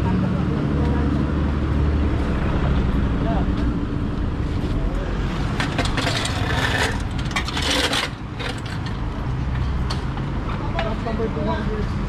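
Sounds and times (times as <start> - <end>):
low street rumble: 0.0 - 12.0
metal clanking and scraping: 5.4 - 9.2.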